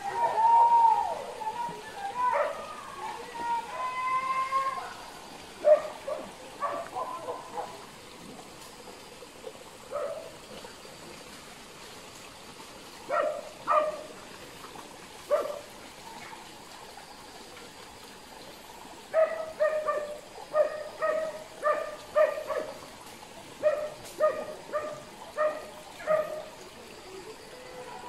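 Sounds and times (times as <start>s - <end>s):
faint steady hiss: 0.0s - 28.0s
dog barking: 2.3s - 2.6s, 5.6s - 7.8s, 9.9s - 10.3s, 13.1s - 14.1s, 15.3s - 15.7s, 19.1s - 22.8s, 23.6s - 26.5s.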